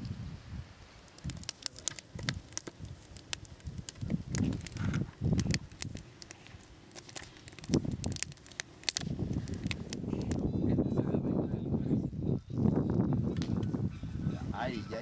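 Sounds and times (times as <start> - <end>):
wood fire crackling and popping: 0.0 - 10.8, 12.6 - 13.9.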